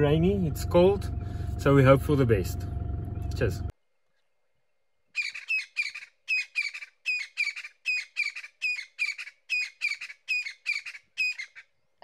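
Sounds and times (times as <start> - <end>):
bird calling harshly: 5.1 - 11.8.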